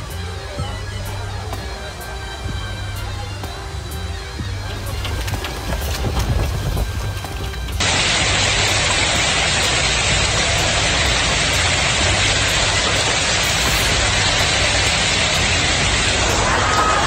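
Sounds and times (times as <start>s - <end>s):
torrential wind-driven rain: 3.7s - 17.0s.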